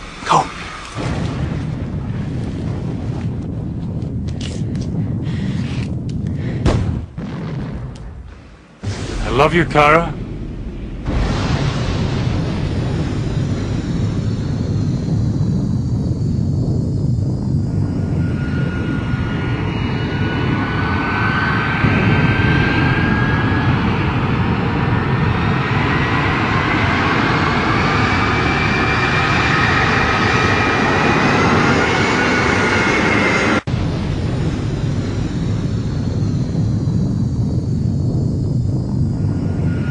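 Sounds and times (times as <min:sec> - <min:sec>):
jet engines roaring: 0:08.8 - 0:39.9.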